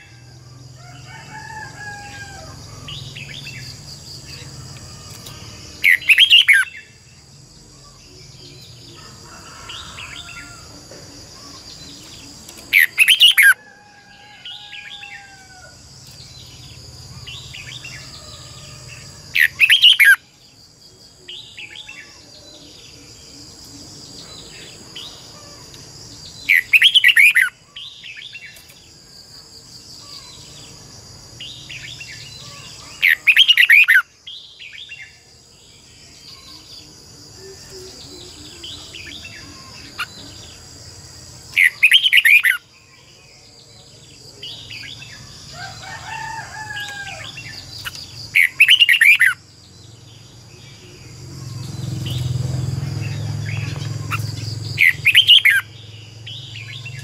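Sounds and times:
high insect drone: 0.0 - 57.0
bird singing warbled phrases: 2.4 - 9.2, 11.3 - 13.6, 19.0 - 20.5, 21.1 - 28.8, 30.0 - 45.4, 46.8 - 57.0.

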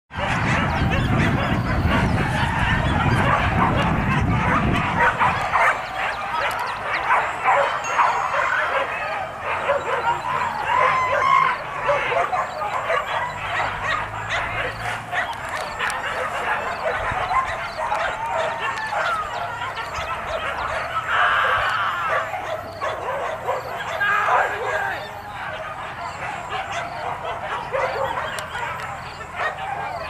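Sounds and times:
dogs barking and yelping: 0.1 - 30.0.

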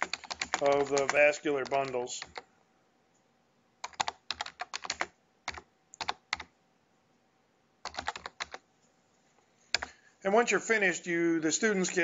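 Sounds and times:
keyboard keys clicking: 0.0 - 2.5, 3.8 - 6.5, 7.8 - 8.6, 9.7 - 9.9.

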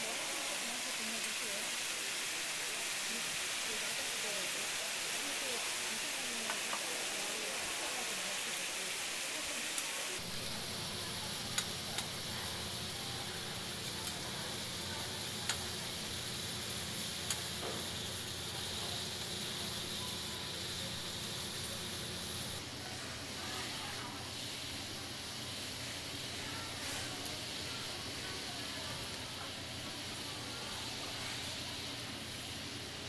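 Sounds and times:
meat patties sizzling on griddle: 0.0 - 33.0
metal utensils clicking on griddle: 11.4 - 12.2, 15.2 - 15.8, 16.9 - 19.0.

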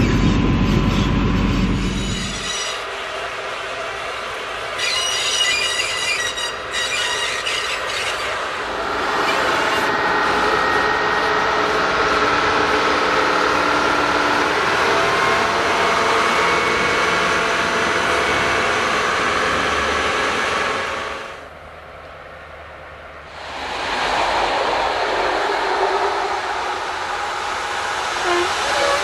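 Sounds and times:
train wheels squealing: 0.0 - 2.9, 4.8 - 8.4
train running noise: 0.0 - 29.0.

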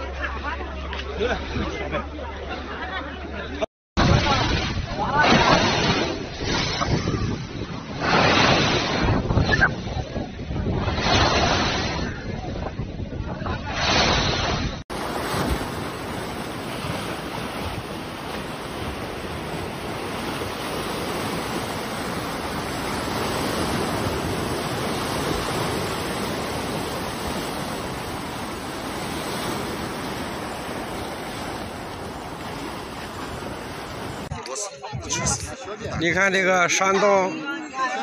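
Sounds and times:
waves washing against bank: 4.0 - 34.4
wind buffeting microphone: 4.0 - 36.2.

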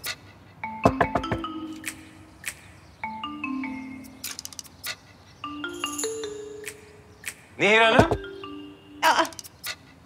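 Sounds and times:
marimba-like mallet notes: 0.6 - 2.4, 3.0 - 4.2, 5.4 - 7.3, 8.0 - 9.2.

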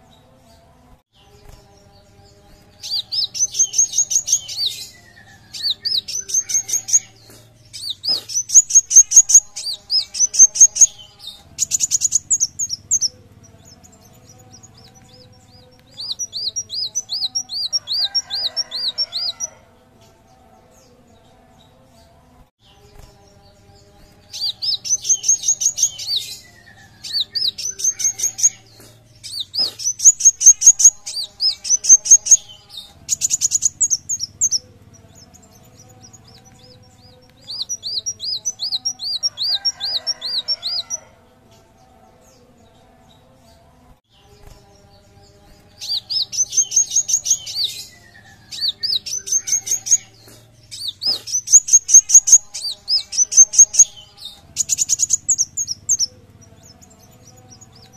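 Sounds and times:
sunbird chirping: 1.2 - 19.5, 22.6 - 41.0, 44.2 - 57.9
swooping bird notes: 1.2 - 19.6.

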